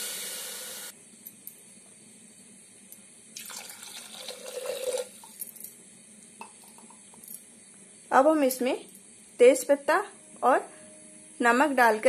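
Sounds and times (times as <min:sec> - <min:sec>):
water pouring into a pot: 0:03.4 - 0:05.4.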